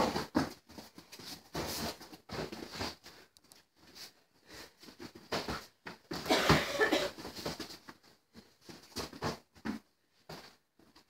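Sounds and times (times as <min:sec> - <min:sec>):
feet scuffing on mats: 0:00.0 - 0:11.0.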